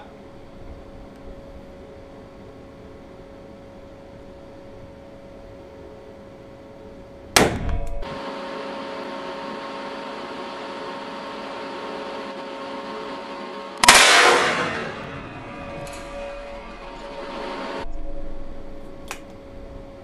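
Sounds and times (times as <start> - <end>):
revolver shots echoing: 13.8 - 17.8.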